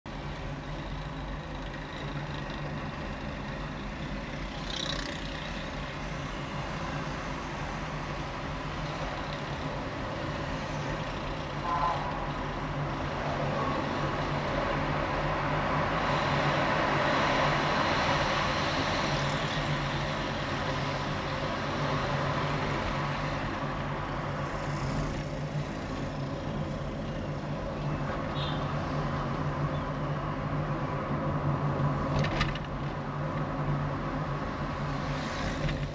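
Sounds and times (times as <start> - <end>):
passing cars and motorcycles: 0.1 - 35.9.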